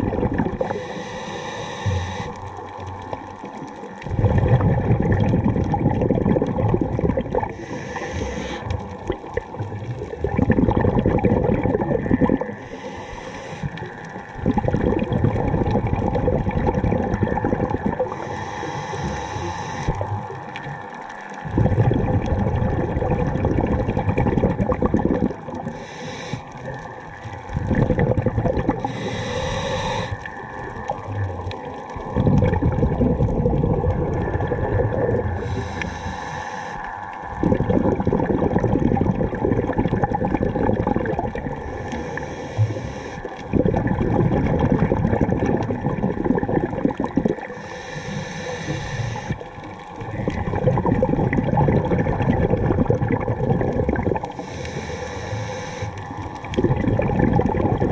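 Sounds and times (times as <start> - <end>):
bubbling underwater exhalations: 0.0 - 1.0, 1.9 - 36.3, 37.2 - 47.6, 48.5 - 55.0, 55.8 - 57.9
regulator inhale hiss: 0.6 - 2.7, 7.5 - 8.8, 12.6 - 14.3, 18.0 - 20.1, 25.6 - 26.8, 28.8 - 30.5, 35.4 - 37.3, 41.6 - 43.4, 47.4 - 49.8, 54.2 - 56.4.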